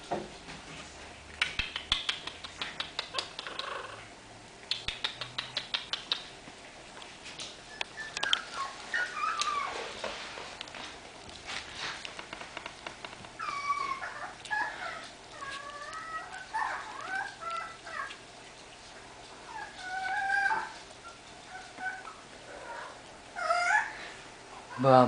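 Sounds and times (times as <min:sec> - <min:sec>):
puppies squeaking and whining: 0:01.8 - 0:04.1, 0:07.4 - 0:10.9, 0:12.4 - 0:24.9.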